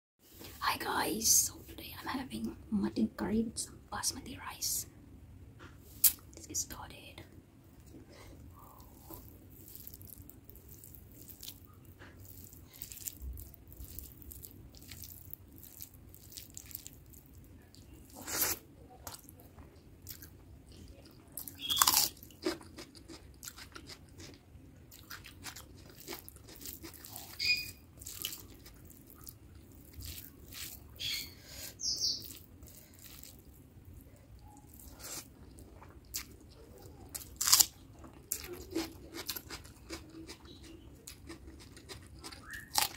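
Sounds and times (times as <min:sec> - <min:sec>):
chewing and wet mouth sounds: 0:07.8 - 0:42.9
loud crunchy bites: 0:21.4 - 0:24.4, 0:37.2 - 0:37.8, 0:41.1 - 0:42.9.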